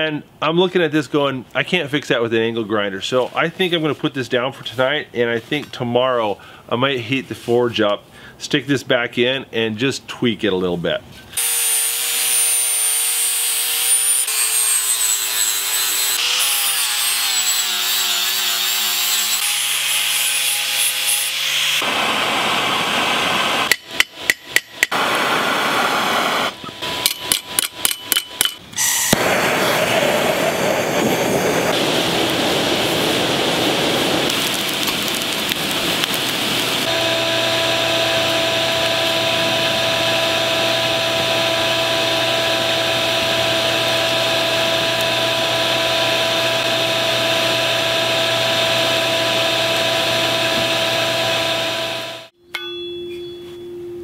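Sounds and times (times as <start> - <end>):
angle grinder grinding steel: 11.4 - 21.9, 36.8 - 52.3
propane torch hissing: 29.1 - 36.9.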